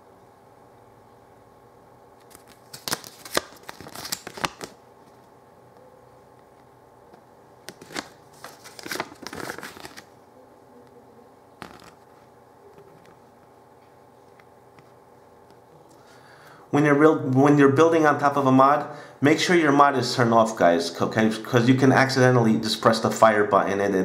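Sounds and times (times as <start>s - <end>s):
paper leaflet crackling and rustling: 2.2s - 4.8s, 7.7s - 10.1s.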